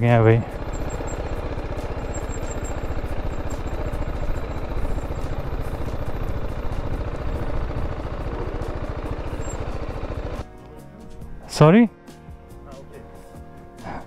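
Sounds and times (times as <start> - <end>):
motorcycle engine at low revs: 0.0 - 10.5.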